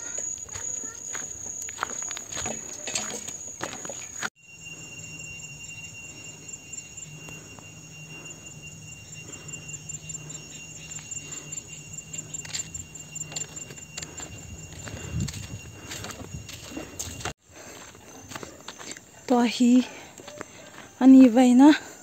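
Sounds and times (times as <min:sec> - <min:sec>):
steady high whine: 0:00.0 - 0:19.2
insects chirping trill: 0:00.0 - 0:22.0.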